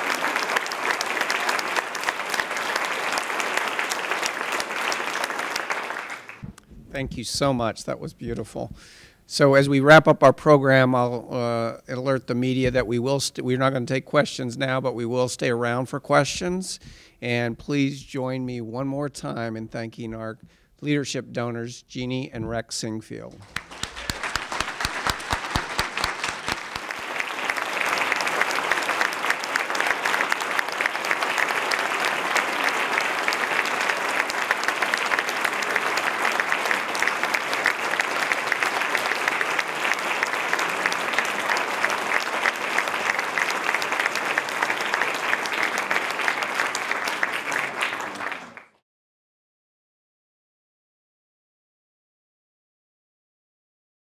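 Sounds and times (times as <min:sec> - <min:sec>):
audience applauding: 0:00.0 - 0:06.6, 0:23.3 - 0:48.8.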